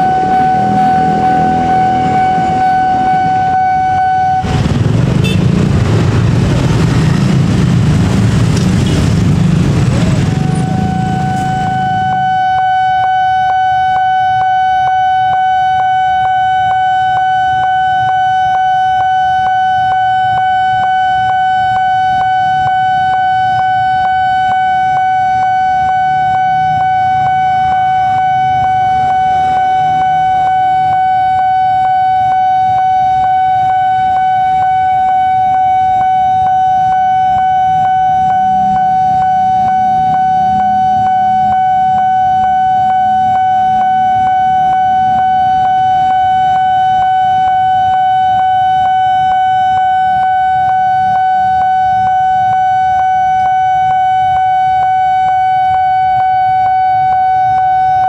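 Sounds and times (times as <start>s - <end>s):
level crossing alarm pulsing tone: 0.0s - 5.5s, 6.3s - 58.0s.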